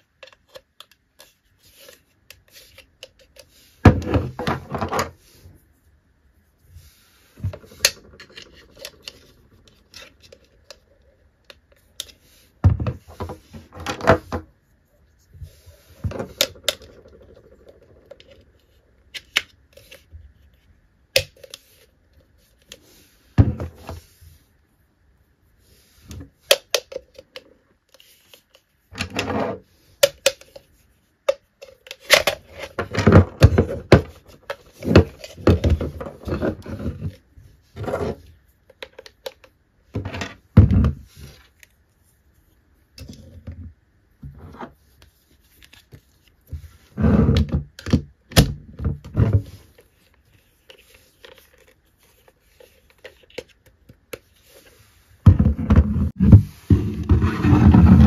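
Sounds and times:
plastic toy parts clicking and rattling: 0:07.5 - 0:12.2.

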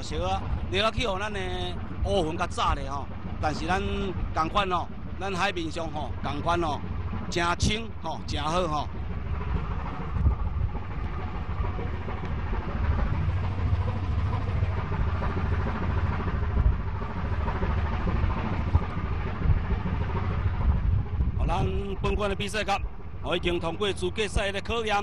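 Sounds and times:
ship engine rumbling: 0:00.0 - 0:25.0
wind and sea noise: 0:00.0 - 0:25.0.

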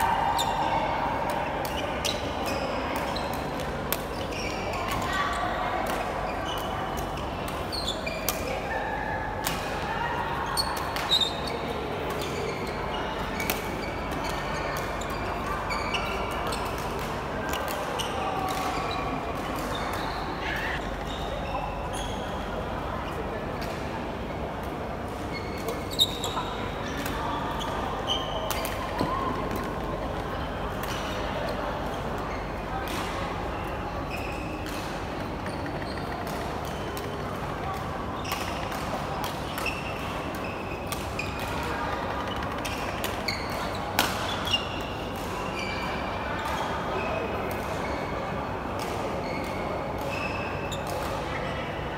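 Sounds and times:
shoes squeaking on court floor: 0:01.7 - 0:08.4, 0:10.4 - 0:22.5, 0:25.2 - 0:32.7, 0:34.1 - 0:37.3, 0:38.1 - 0:48.2, 0:49.0 - 0:51.2
shoes squeaking on floor: 0:04.1 - 0:05.0, 0:06.2 - 0:08.3, 0:12.2 - 0:13.2, 0:25.3 - 0:27.0, 0:42.8 - 0:44.9, 0:49.2 - 0:50.8.

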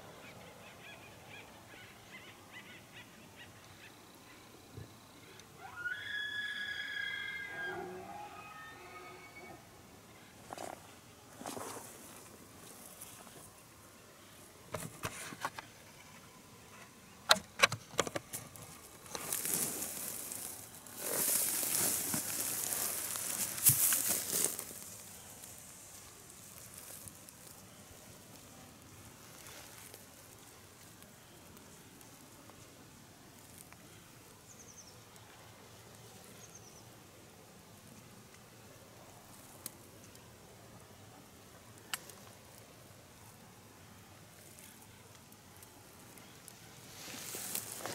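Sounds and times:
rustling and scraping: 0:10.4 - 0:13.6, 0:14.7 - 0:30.5, 0:46.8 - 0:47.9.

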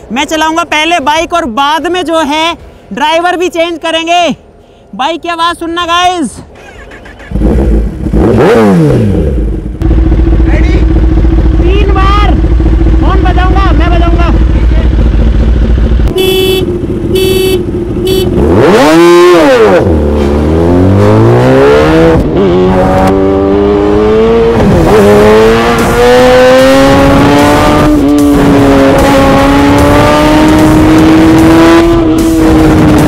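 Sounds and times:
engine accelerating at full throttle: 0:07.3 - 0:16.1, 0:17.8 - 0:33.0
short horn beeps: 0:16.1 - 0:18.4.

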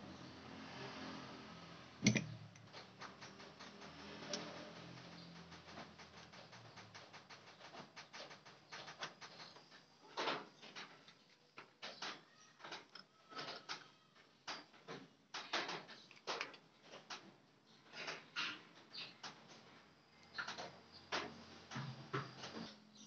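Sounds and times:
metal knocks: 0:02.0 - 0:02.7
metallic clicks and taps: 0:02.0 - 0:09.5.

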